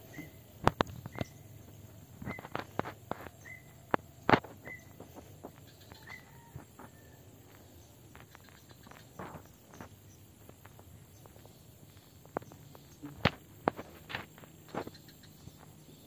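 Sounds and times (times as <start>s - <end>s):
dry grass snapping and crackling: 7.4s - 15.0s.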